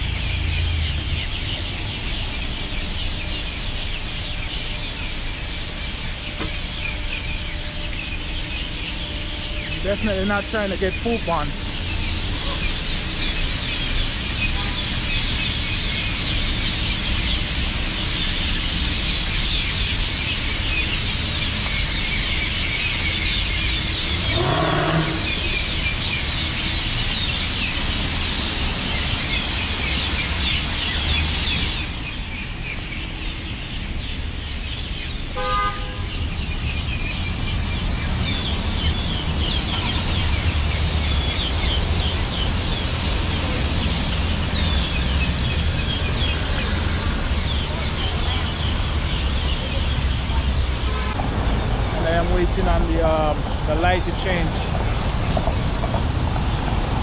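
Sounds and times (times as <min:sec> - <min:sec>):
flock of birds chattering: 0:00.0 - 0:55.7
traffic rumble: 0:00.0 - 0:57.0
car horn toot: 0:35.4 - 0:36.1.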